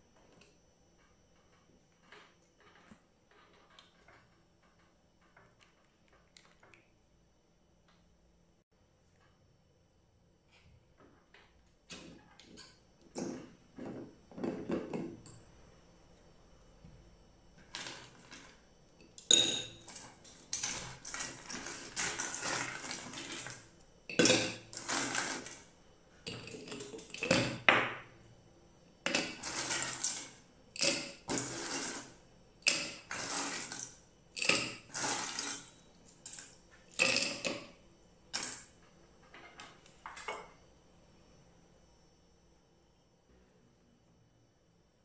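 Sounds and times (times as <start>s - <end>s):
ice cubes clinking into glass jar: 19.2s - 25.6s, 29.1s - 37.6s
ice cubes clattering in steel pot: 19.3s - 25.6s, 29.1s - 37.7s.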